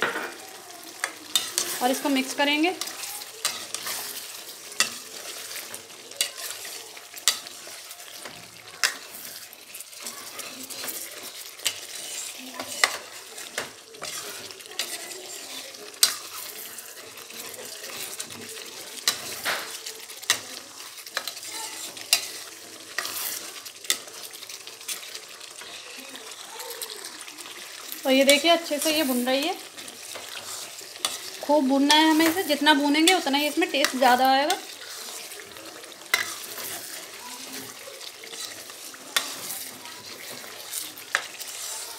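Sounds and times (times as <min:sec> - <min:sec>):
food sizzling in a pan: 0:00.0 - 0:41.9
spatula scraping metal pan: 0:00.0 - 0:41.9.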